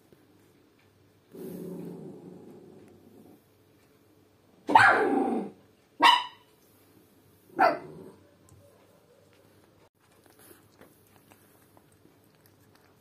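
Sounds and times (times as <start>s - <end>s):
dog barking: 4.7s - 5.2s, 6.0s - 6.5s, 7.6s - 9.5s.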